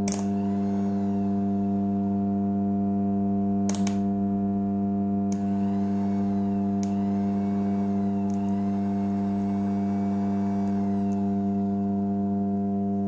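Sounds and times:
electric motor running fast: 0.0 - 2.4, 5.4 - 12.6
transformer humming: 0.0 - 13.0.

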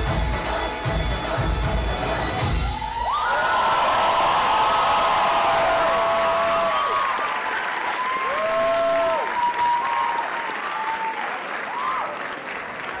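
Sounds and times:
audience applauding and cheering: 2.3 - 13.0
long whoops: 2.7 - 7.3, 7.9 - 12.2.

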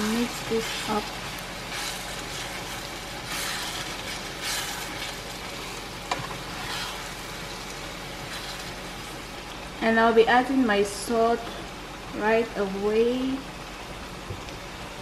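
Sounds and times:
wooden spatula stirring: 0.0 - 9.6
sauce sizzling in a frying pan: 0.0 - 15.0.

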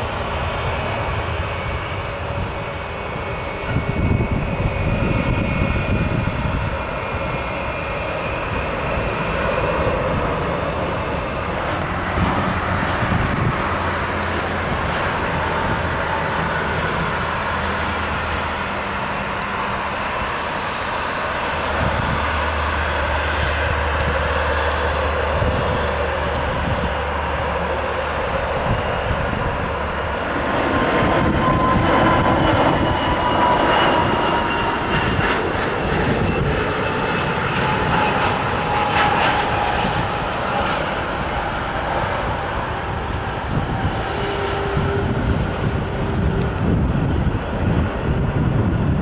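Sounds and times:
jet engines whining: 0.0 - 49.0
turboprop propeller drone: 0.0 - 49.0.

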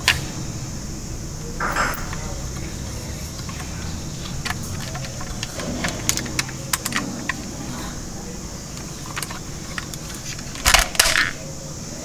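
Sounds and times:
small plastic toy clicks: 3.3 - 7.7, 8.7 - 11.4.

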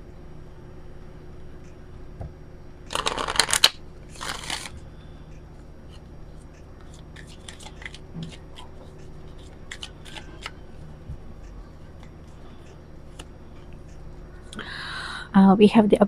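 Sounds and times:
cards clicking and snapping: 2.9 - 4.8, 6.8 - 8.7, 9.3 - 10.6
cards riffle shuffling: 2.9 - 4.8, 6.8 - 10.6.

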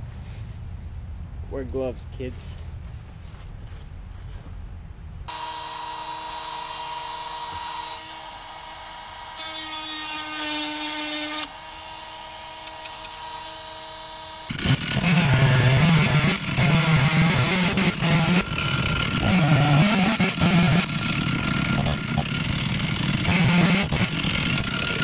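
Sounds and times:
chainsaw cutting wood: 5.3 - 25.0.

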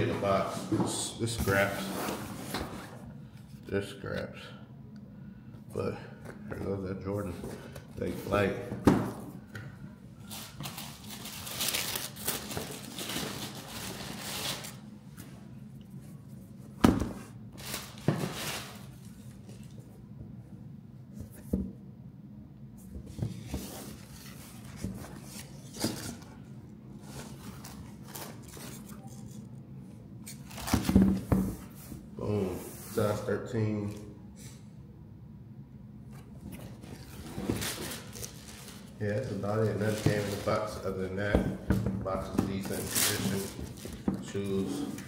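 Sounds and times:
tissue paper rustling: 10.2 - 14.8, 37.0 - 40.8
handling noises: 36.1 - 45.0.

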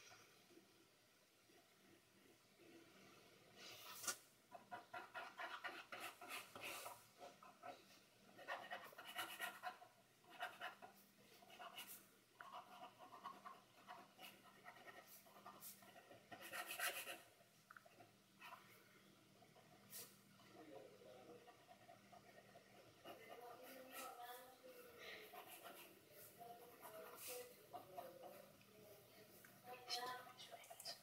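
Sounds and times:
pen nib scratching on paper: 3.9 - 18.6, 21.3 - 24.6, 25.2 - 28.5.

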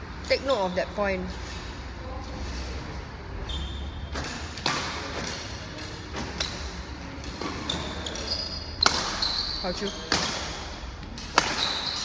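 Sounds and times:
shoe squeak: 3.4 - 4.3, 7.4 - 10.2, 11.6 - 12.0
racket hitting shuttlecock: 8.8 - 9.3, 10.0 - 10.6, 11.2 - 12.0.

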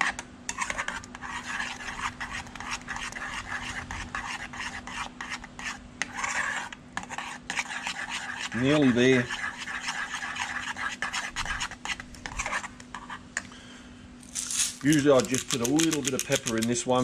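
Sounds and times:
spoon scraping saucepan: 0.0 - 5.1, 6.1 - 13.2.

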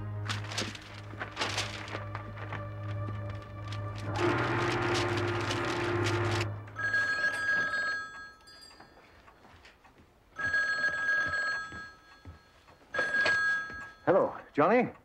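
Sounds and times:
rotary telephone ringing: 4.2 - 9.4, 10.4 - 14.2.

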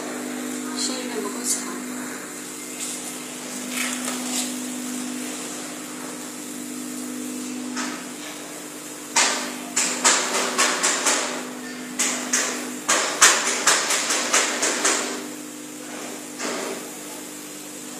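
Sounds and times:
machine electrical hum: 0.0 - 17.9
sharp knocks: 9.2 - 11.4, 12.0 - 15.2.

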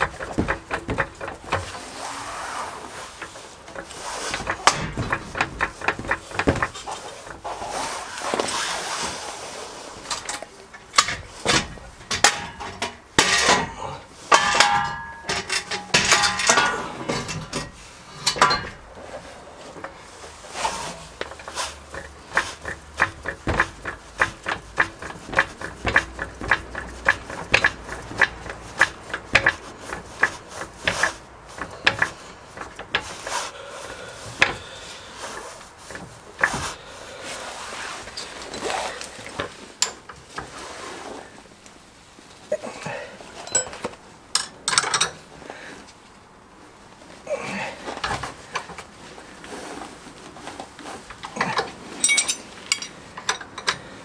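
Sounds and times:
tools clanking on metal: 0.0 - 2.0, 3.0 - 7.7, 10.0 - 36.8, 38.0 - 40.6, 42.9 - 45.3, 51.0 - 54.0
ringing metallic clatter: 3.2 - 7.5, 10.2 - 19.0, 52.0 - 53.8.

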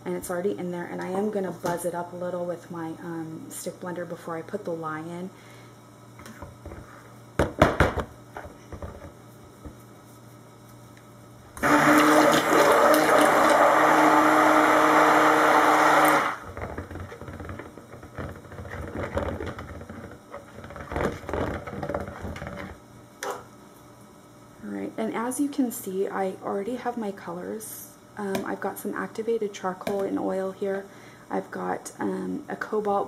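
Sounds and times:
stick blender running: 11.6 - 22.7.

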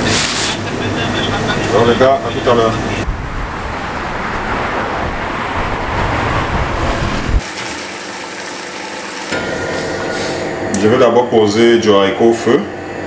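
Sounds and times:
road traffic going by: 0.0 - 7.4
tap water running into a pot: 7.4 - 9.4.

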